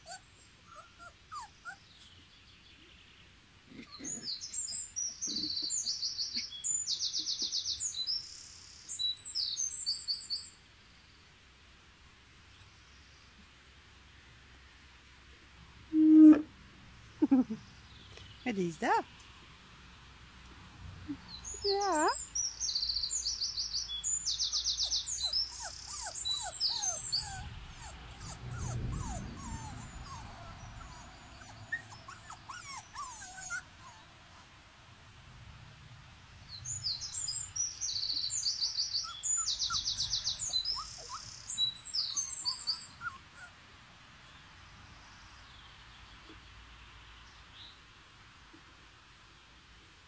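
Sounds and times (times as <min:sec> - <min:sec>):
puppy whimpers and squeaks: 0:00.0 - 0:01.8, 0:24.8 - 0:34.5, 0:39.0 - 0:43.6
songbird singing high trills: 0:21.3 - 0:28.3, 0:36.6 - 0:43.2.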